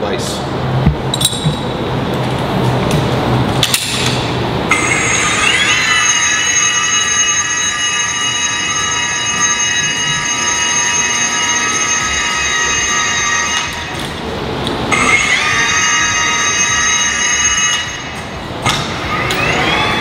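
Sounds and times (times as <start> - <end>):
rope ascender motor whine: 4.6 - 20.0.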